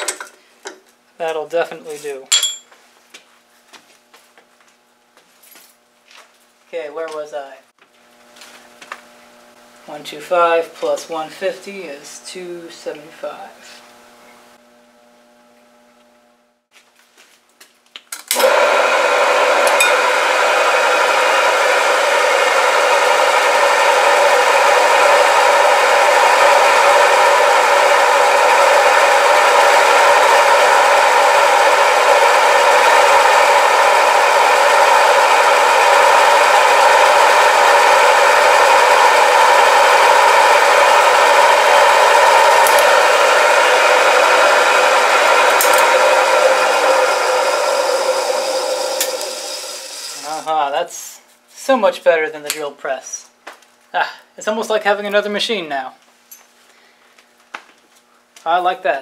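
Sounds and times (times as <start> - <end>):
milling machine humming: 18.4 - 50.6
drill bit cutting metal: 19.6 - 20.1, 25.7 - 50.5.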